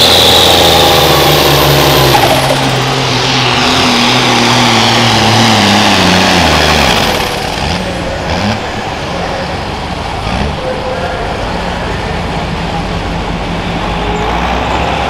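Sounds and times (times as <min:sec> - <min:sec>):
tractor diesel engine running hard: 0:00.0 - 0:15.0.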